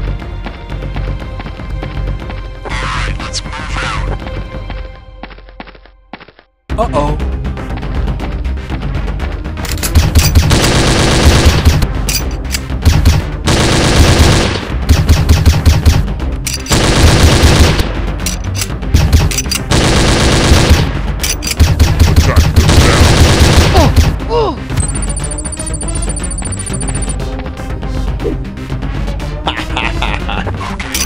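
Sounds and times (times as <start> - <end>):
background music: 0.0 - 31.0
automatic gunfire bursts: 10.0 - 11.8, 12.9 - 16.0, 16.7 - 17.9, 19.0 - 20.9, 21.6 - 24.2.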